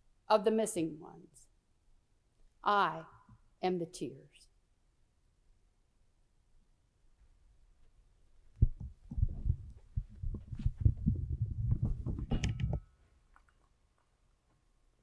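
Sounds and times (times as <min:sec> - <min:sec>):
knocks and thumps on lectern: 0:10.2 - 0:12.8.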